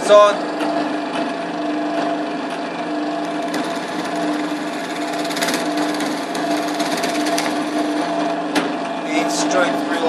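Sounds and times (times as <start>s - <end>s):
drill press motor hum: 0.0s - 10.0s
drill bit scraping through wood: 3.2s - 8.2s.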